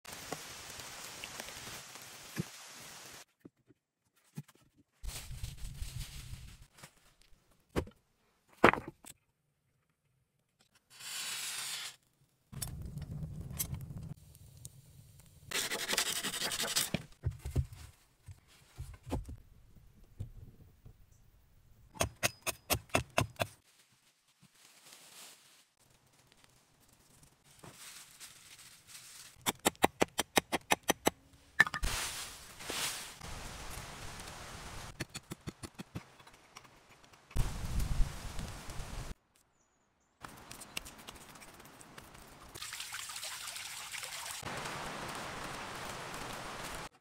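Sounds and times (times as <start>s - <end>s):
footsteps through dry leaves: 5.1s - 6.8s, 23.6s - 25.8s, 27.4s - 29.4s, 31.8s - 34.6s.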